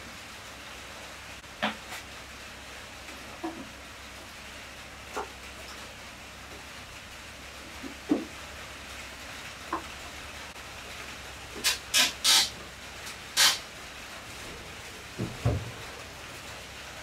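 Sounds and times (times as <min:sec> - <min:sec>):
television set thumping on shelf: 0:15.2 - 0:15.7.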